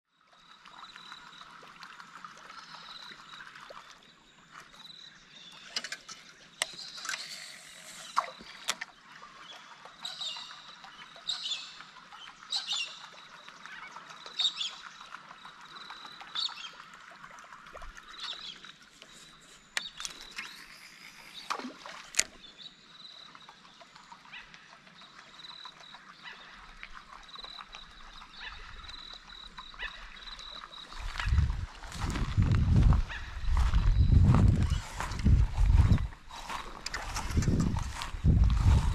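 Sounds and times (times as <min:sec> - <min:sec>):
birds chirping: 0:18.0 - 0:23.6, 0:27.3 - 0:38.9.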